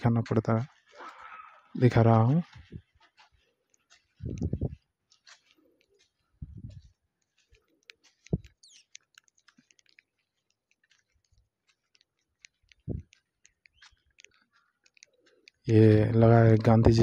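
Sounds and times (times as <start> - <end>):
faint irregular clicks and ticks: 0.0 - 17.0
soft low thumps: 4.2 - 4.8, 6.4 - 6.9, 8.2 - 8.5, 12.8 - 13.2.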